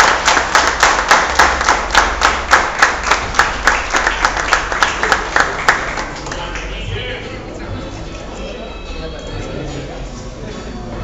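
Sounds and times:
people clapping in rhythm: 0.0s - 7.1s.

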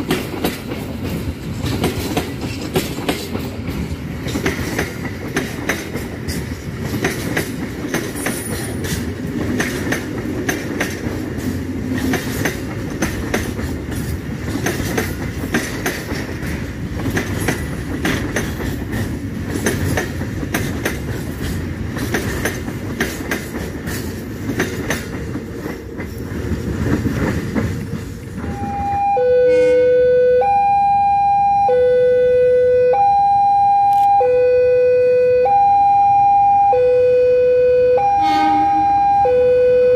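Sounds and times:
train wheels clattering on rails: 0.0s - 28.8s
level crossing warning alarm: 28.4s - 39.9s.

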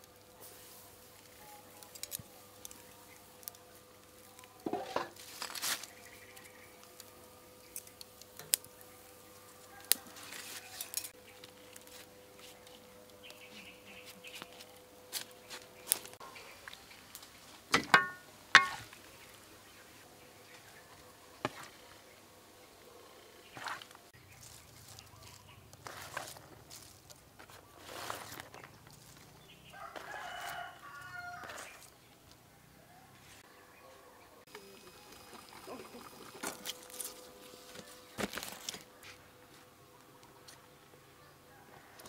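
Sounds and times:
metal tongs clinking on grill rack: 10.7s - 11.1s, 17.8s - 18.8s.

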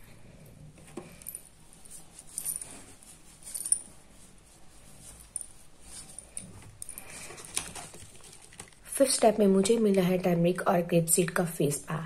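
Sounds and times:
tissue rubbing on skin: 1.5s - 8.6s.

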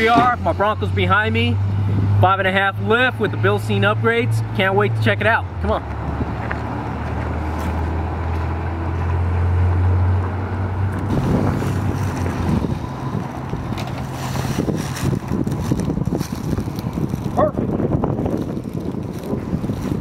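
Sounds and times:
low engine hum: 0.0s - 20.0s
wind on microphone: 5.9s - 8.2s, 10.8s - 20.0s
footsteps on gravel: 6.4s - 9.1s, 11.1s - 17.5s.

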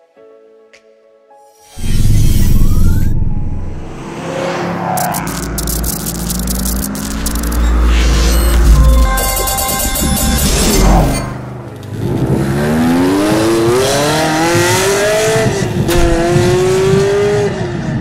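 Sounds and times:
car engine accelerating hard: 12.0s - 18.0s.

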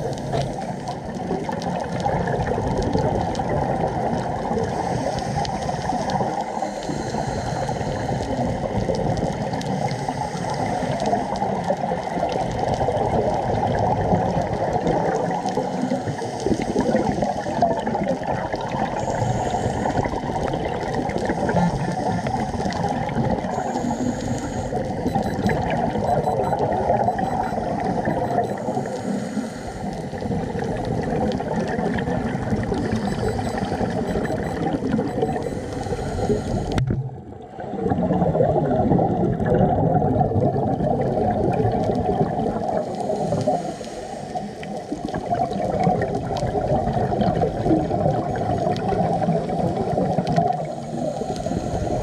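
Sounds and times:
muffled underwater gurgling: 0.0s - 52.0s.

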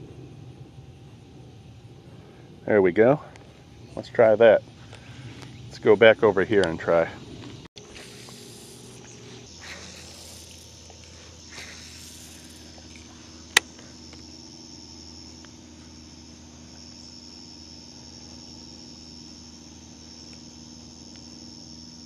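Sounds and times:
insects chirring: 0.0s - 22.0s
sharp click: 6.6s - 6.8s, 12.9s - 14.2s.

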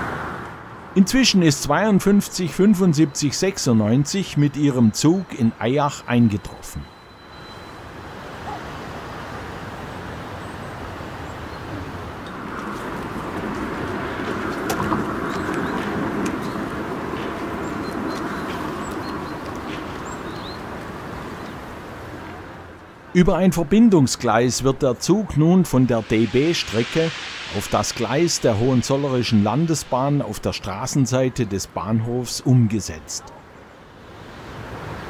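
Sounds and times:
faint high bird chirps: 6.0s - 7.9s
steam locomotive hiss and rumble: 11.9s - 20.4s, 24.5s - 31.8s.

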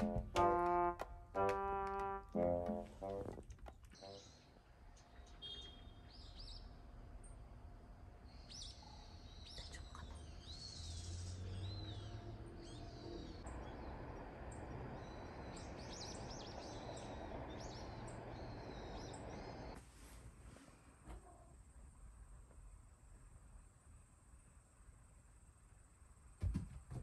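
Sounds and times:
steady outdoor hiss: 0.0s - 27.0s
birds chirping and calling: 8.4s - 19.8s.

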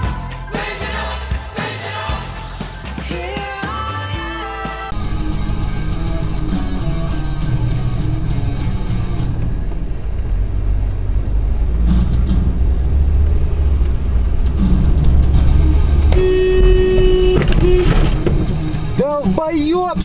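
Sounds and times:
background music: 0.0s - 20.0s
vehicle rumble: 4.9s - 20.0s
sudden loud held tone: 14.6s - 19.0s.

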